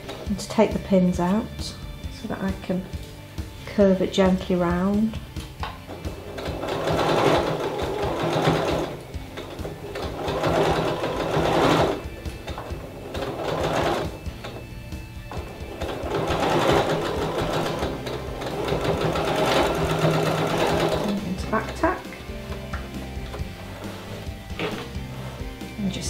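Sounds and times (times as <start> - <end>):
sewing machine stitching: 5.9 - 14.6, 15.3 - 22.6, 23.2 - 25.6.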